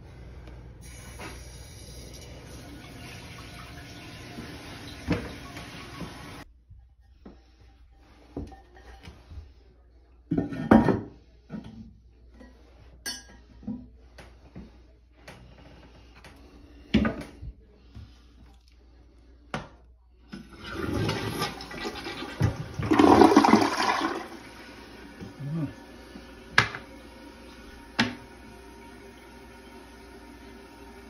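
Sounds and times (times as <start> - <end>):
toilet flushing: 0.8 - 6.5, 20.3 - 31.0.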